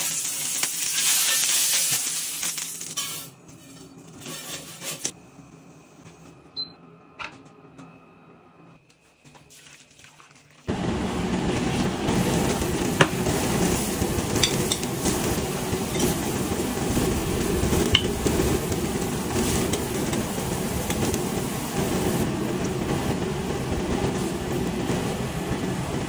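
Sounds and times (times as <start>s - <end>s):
broth boiling and bubbling: 9.4s - 26.0s.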